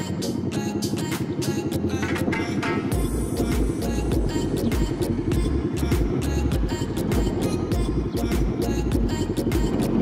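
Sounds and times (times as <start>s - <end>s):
music with fast drum beat: 1.1s - 10.0s
heavy bass: 2.9s - 10.0s.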